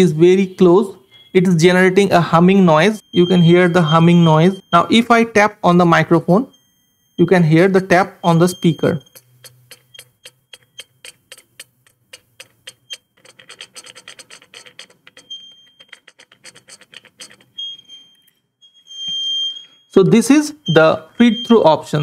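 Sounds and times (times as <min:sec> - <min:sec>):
high feedback whistle: 0:00.4 - 0:02.1, 0:02.8 - 0:05.2, 0:06.3 - 0:10.9, 0:17.5 - 0:22.0.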